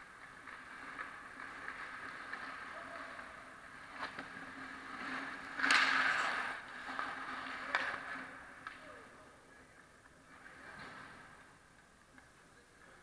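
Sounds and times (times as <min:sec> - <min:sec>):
ice skates scraping on ice: 0:00.0 - 0:08.6
low arena hum: 0:00.0 - 0:13.0.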